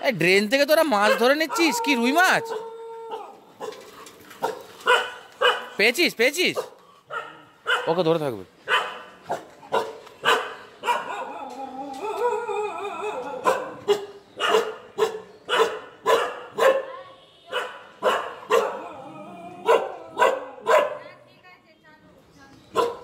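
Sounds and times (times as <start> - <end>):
dog barking: 1.0 - 2.6, 3.6 - 5.8, 6.6 - 8.0, 8.7 - 11.4, 13.0 - 18.9, 19.6 - 21.2, 22.7 - 23.0.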